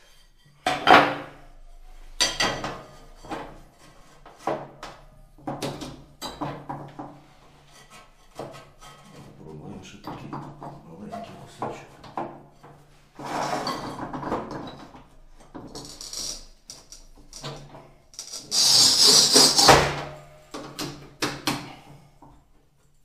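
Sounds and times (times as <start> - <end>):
tile cutter wheel scraping tile: 13.2 - 14.8, 15.6 - 17.6, 18.2 - 20.1.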